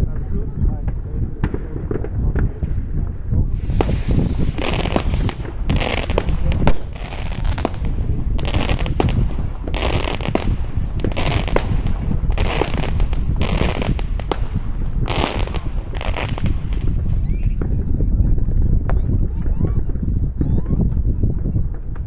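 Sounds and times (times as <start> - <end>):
firework bangs: 0.8 - 17.8
firecracker crackling: 0.9 - 17.7.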